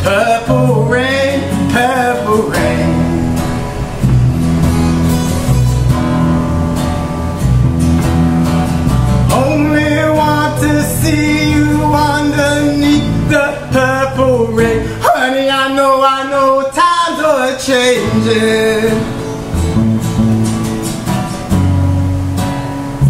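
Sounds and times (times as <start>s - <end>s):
man singing: 0.0s - 4.0s, 9.3s - 19.5s
acoustic guitar strumming chords: 0.0s - 23.0s.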